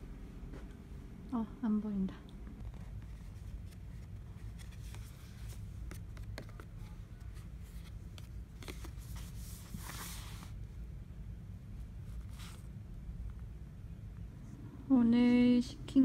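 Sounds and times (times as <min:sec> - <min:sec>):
low room hum: 0:00.0 - 0:16.0
paper card tapping and crinkling: 0:02.7 - 0:09.1.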